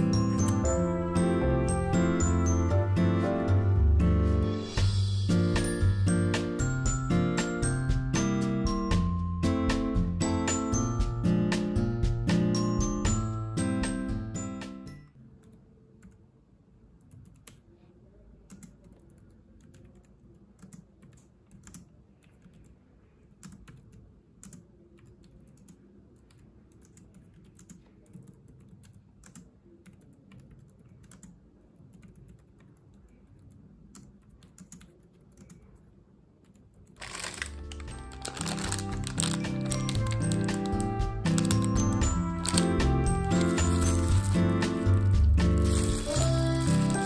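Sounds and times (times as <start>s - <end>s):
music: 0.0s - 15.1s, 37.1s - 47.0s.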